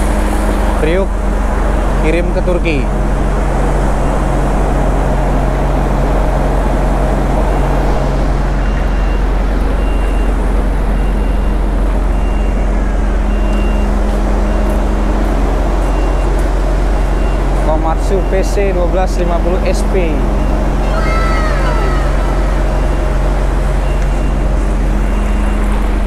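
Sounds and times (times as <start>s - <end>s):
heavy diesel engine running: 0.0s - 26.0s
reversing alarm beeping: 8.6s - 15.0s, 15.8s - 18.8s, 19.4s - 26.0s.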